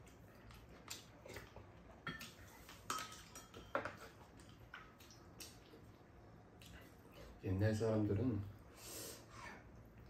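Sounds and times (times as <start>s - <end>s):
utensils clinking against bowls: 2.0s - 4.2s.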